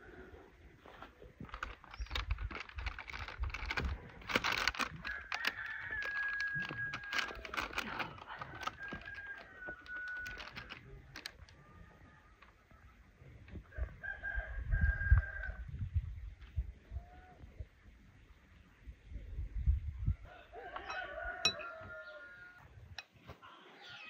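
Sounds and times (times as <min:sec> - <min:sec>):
paper rustling: 0:00.9 - 0:11.6
rooster crowing: 0:05.0 - 0:10.7, 0:20.3 - 0:22.7.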